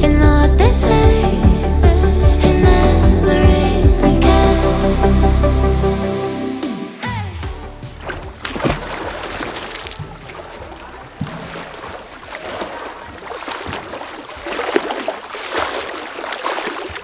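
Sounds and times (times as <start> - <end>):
people splashing in water: 7.5 - 17.0
sharp splashes: 7.5 - 17.0.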